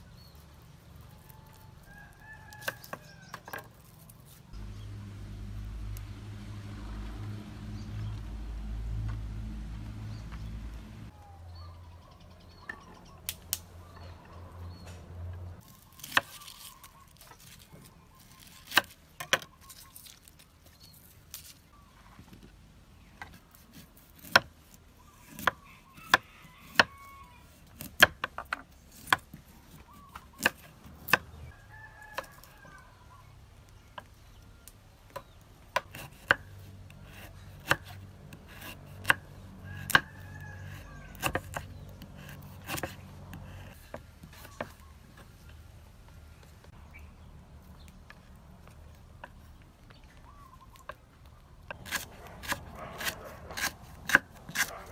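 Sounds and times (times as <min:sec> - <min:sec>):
knife chopping on wooden board: 0:25.3 - 0:27.0, 0:27.8 - 0:29.3, 0:37.1 - 0:40.2, 0:40.8 - 0:45.3, 0:51.7 - 0:54.9.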